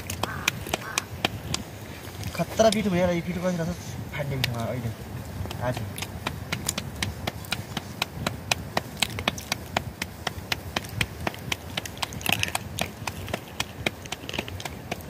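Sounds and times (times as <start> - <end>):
hands slapping dough: 0.0 - 1.7, 5.4 - 15.0.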